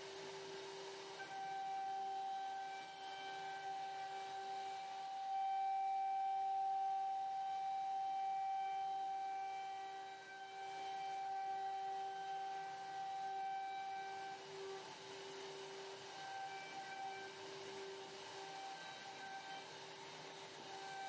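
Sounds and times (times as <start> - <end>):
router spindle high whine: 0.0 - 21.0.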